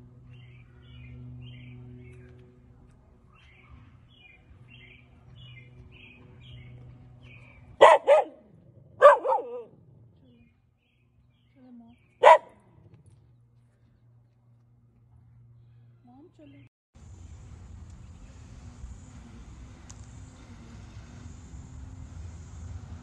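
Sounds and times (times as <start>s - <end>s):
steady low hum: 0.0s - 23.0s
dog barking: 7.8s - 8.4s, 9.0s - 9.8s, 12.2s - 12.6s.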